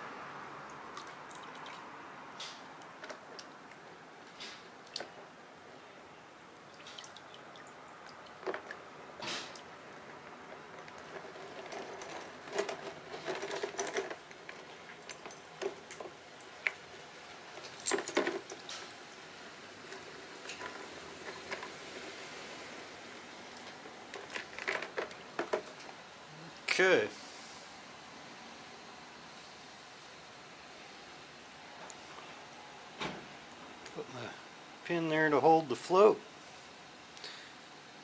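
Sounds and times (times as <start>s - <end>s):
small metal parts clinking: 10.0s - 16.9s, 17.5s - 21.8s, 22.8s - 25.8s.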